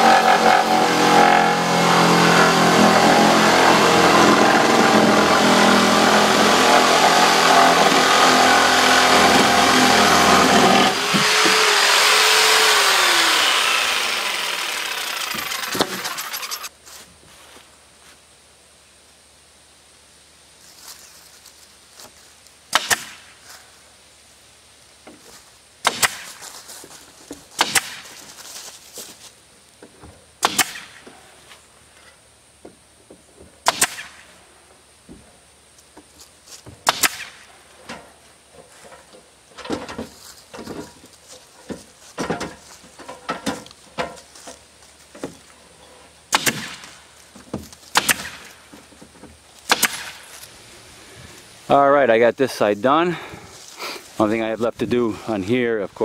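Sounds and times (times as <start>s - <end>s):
nail gun firing: 14.2s - 16.7s, 27.6s - 28.0s, 30.4s - 31.0s, 33.6s - 34.2s, 36.8s - 37.4s, 46.3s - 46.9s, 47.9s - 48.5s, 49.7s - 50.2s.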